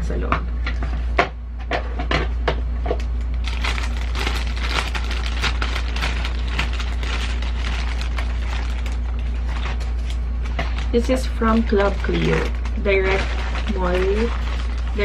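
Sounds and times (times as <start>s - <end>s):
plastic pouch crinkling: 3.4s - 15.0s.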